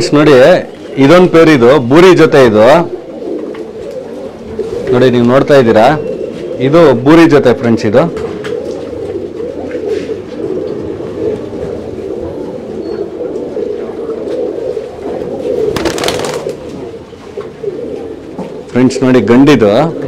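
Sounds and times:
pigeons cooing: 0.0s - 20.0s.

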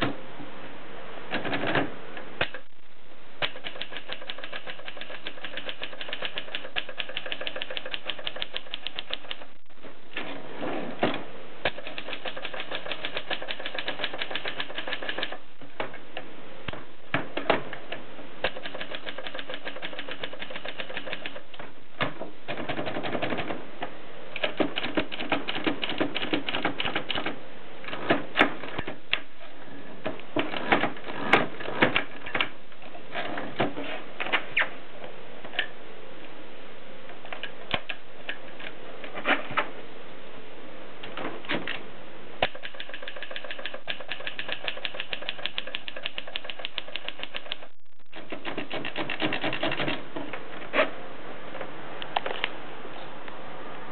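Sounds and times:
typewriter keystroke clacks: 3.4s - 9.5s, 11.7s - 15.4s, 18.4s - 21.6s, 24.4s - 28.9s, 42.4s - 50.0s.

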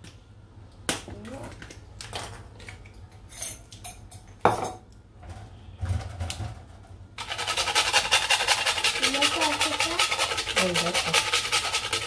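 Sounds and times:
utensils clattering on a counter: 3.2s - 6.6s
nutmeg scraping on a metal grater: 7.2s - 12.0s.

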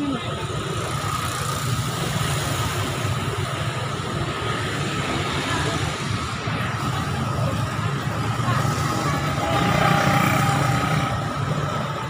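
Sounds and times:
vehicle engines rumbling: 0.0s - 12.0s.

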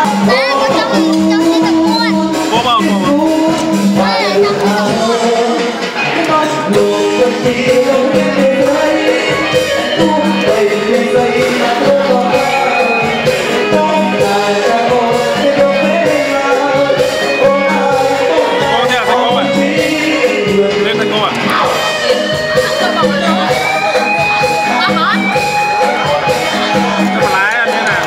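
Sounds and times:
music with singing and steady beat: 0.0s - 28.0s.

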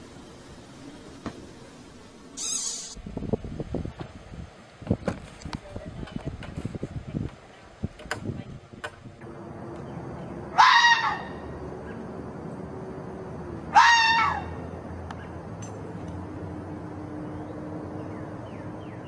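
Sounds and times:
fox scream-like bark: 10.5s - 11.4s, 13.7s - 14.6s.

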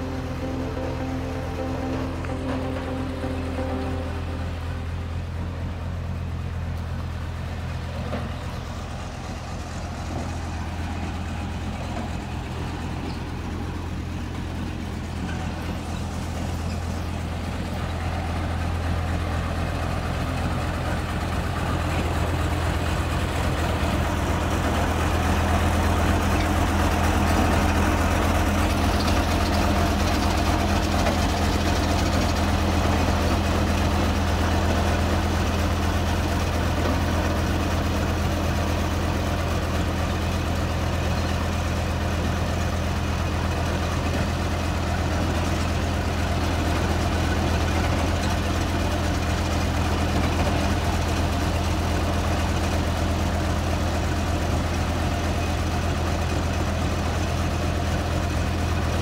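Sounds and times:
road roller diesel engine droning: 0.0s - 59.0s.

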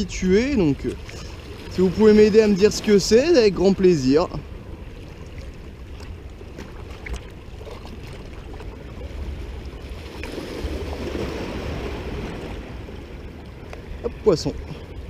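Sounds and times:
wind rumbling on microphone: 0.0s - 15.0s
small waves splashing against rocks: 0.4s - 4.0s, 5.0s - 13.0s.

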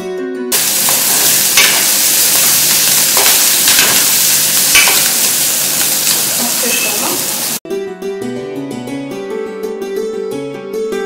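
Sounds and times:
onions sizzling in hot oil: 0.5s - 7.6s.

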